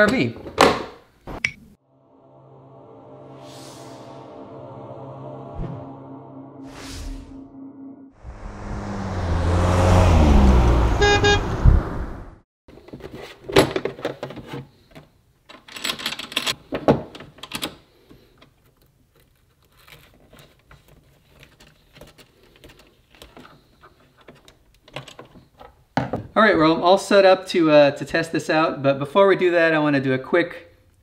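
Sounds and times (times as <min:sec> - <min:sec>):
motorhome engine passing: 0:08.2 - 0:12.4
vehicle horn toot: 0:10.8 - 0:11.7.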